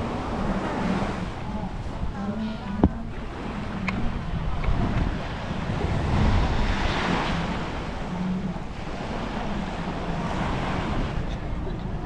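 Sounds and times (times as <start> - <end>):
wind rumbling on microphone: 0.0 - 12.0
surf breaking on beach: 2.8 - 11.4.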